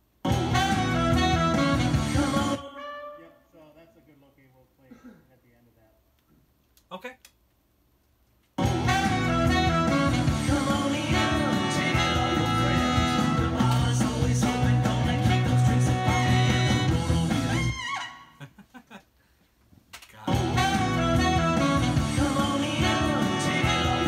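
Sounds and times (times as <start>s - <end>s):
guitar: 0.2s - 3.2s, 8.6s - 18.2s, 20.2s - 24.0s
person singing: 0.2s - 3.5s, 8.6s - 17.7s, 20.2s - 24.0s
brass and saxophone horn section: 0.3s - 3.6s, 8.6s - 18.5s, 20.3s - 24.0s.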